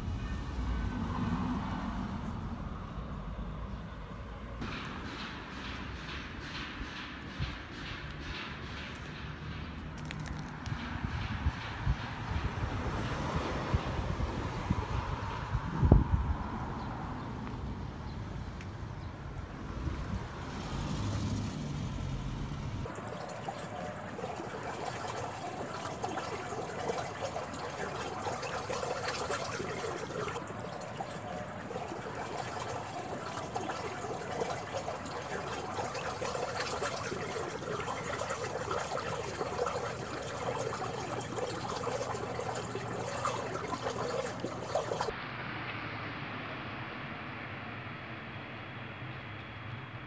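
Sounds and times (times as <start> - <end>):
water trickling in a gutter: 22.8 - 45.1.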